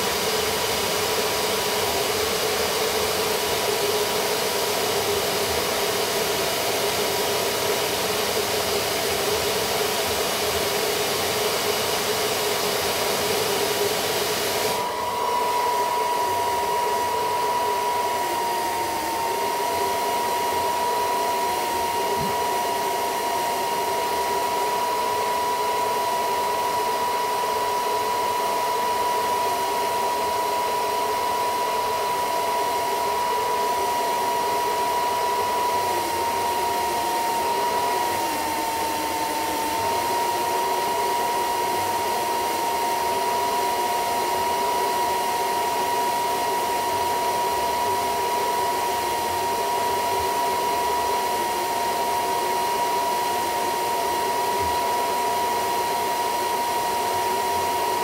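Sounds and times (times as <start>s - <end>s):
hair dryer whining: 0.0s - 58.0s.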